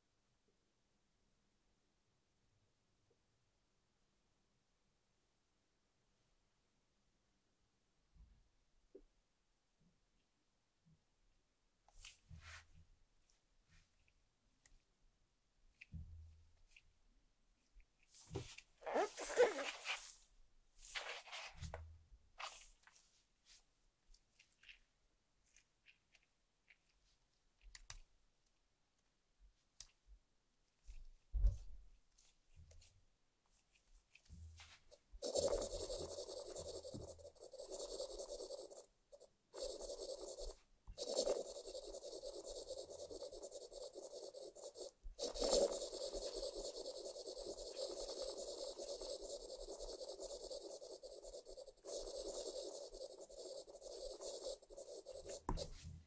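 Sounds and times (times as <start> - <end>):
stylus scratching on glass screen: 18.2 - 20.2, 34.2 - 56.0.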